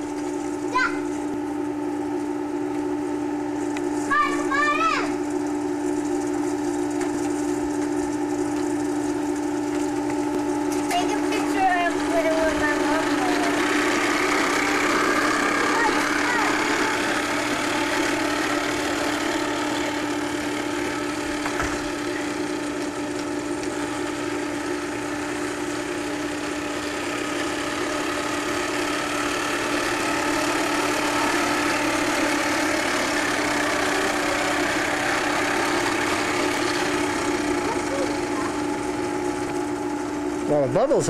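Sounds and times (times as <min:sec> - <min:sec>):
toy motor buzzing: 0:10.9 - 0:20.3, 0:27.4 - 0:38.7.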